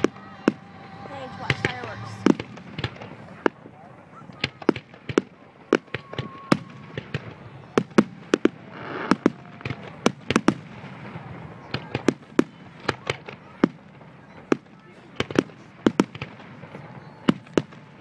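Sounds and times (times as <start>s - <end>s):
firework shells bursting: 0.0s - 10.8s.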